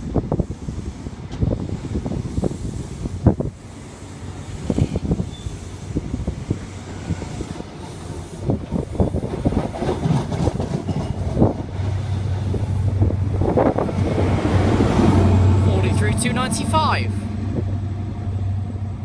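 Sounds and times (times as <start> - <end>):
train wheels clacking over rail joints: 7.0 - 12.6
low diesel drone: 12.0 - 19.0.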